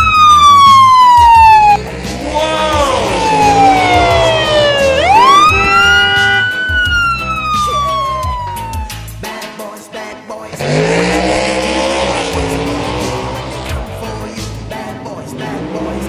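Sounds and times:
police siren wailing: 0.0 - 9.1
background music with beat: 0.0 - 16.0.

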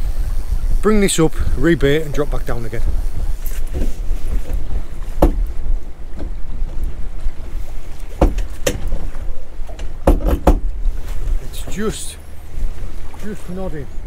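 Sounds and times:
wind buffeting microphone: 0.0 - 14.0
sharp knocks: 3.7 - 5.5, 8.1 - 9.1, 9.7 - 10.7.

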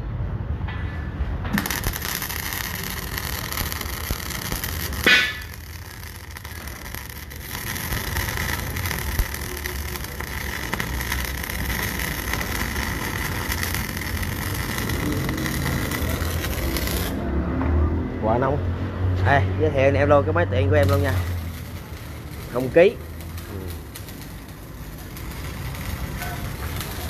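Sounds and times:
sharp loud crack: 1.5 - 9.2
welding arc crackling: 1.5 - 17.2, 20.6 - 27.0.

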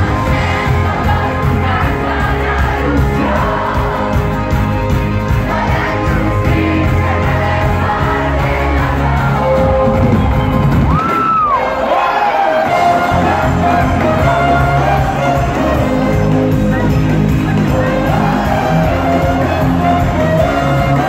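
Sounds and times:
live band playing: 0.0 - 21.0
crowd shouting along: 7.6 - 16.9.

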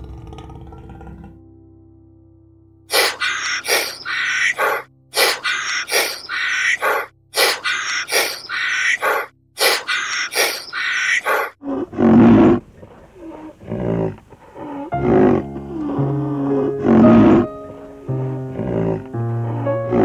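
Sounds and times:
animal calls: 2.9 - 15.4.

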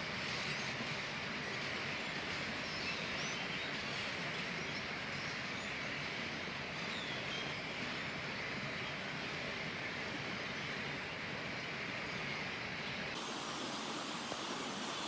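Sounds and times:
flock of birds chattering: 13.2 - 15.0.

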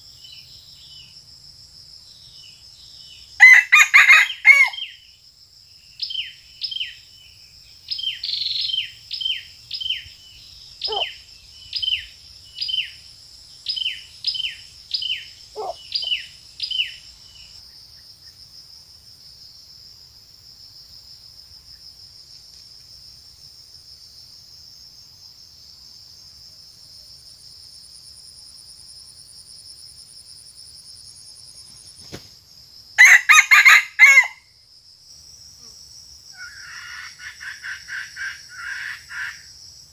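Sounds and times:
high insect drone: 0.0 - 39.9
rooster crowing: 3.4 - 4.8, 33.0 - 34.4
bird chirping: 5.9 - 17.8.

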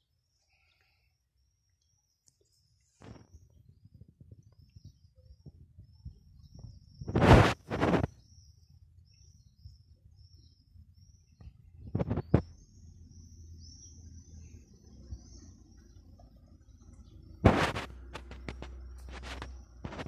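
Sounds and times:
small birds chirping: 0.0 - 20.0
loud scraping knocks: 17.4 - 20.0.

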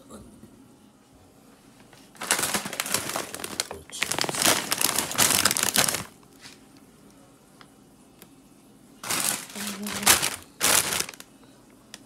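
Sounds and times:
plastic chip bag crinkling: 2.2 - 6.2, 9.0 - 11.3.

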